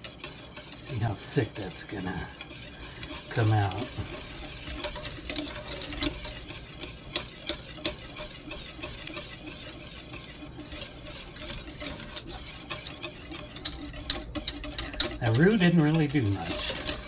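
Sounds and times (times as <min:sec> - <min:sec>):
whisk clicking against saucepan: 0:00.0 - 0:17.0.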